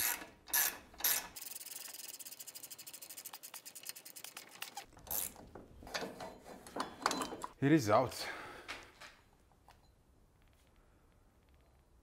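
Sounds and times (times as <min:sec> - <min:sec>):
ratchet wrench clicking: 0:00.0 - 0:04.4.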